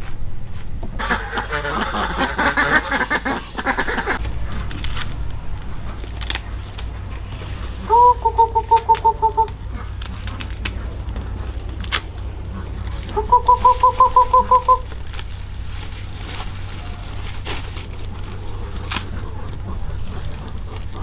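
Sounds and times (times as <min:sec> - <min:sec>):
steady low rumble: 0:00.0 - 0:21.0
bird calling short notes: 0:07.8 - 0:09.6, 0:13.1 - 0:15.0.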